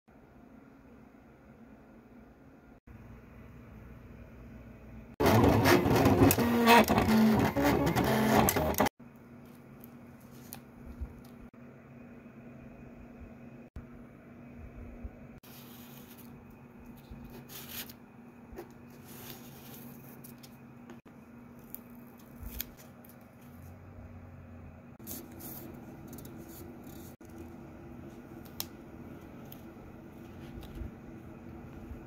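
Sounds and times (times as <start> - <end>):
tape and vinyl crinkling: 5.2 - 11.4, 18.6 - 23.8
tape crackles: 21.4 - 23.7.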